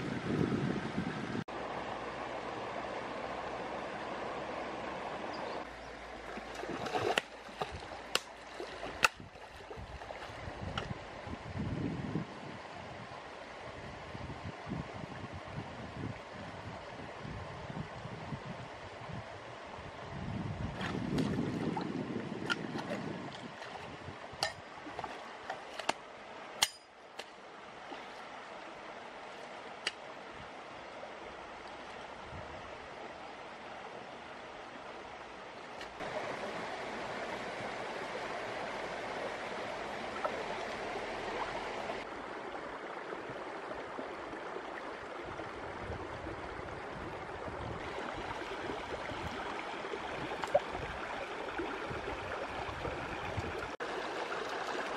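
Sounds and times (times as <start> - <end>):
stream running over rocks: 0.0 - 54.9
splashes of person wading: 6.2 - 10.4, 20.8 - 26.0.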